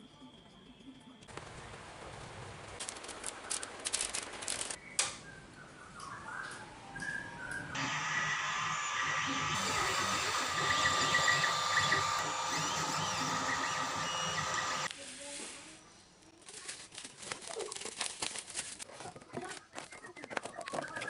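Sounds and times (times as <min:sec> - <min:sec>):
bubble wrap and paper crinkling: 0:02.8 - 0:04.8, 0:16.2 - 0:21.0
stepper motors whining: 0:07.8 - 0:14.9.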